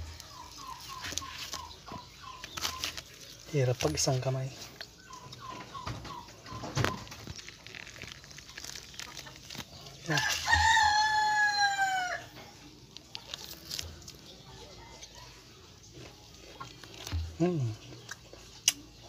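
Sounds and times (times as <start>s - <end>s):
rooster crowing: 10.1s - 12.4s.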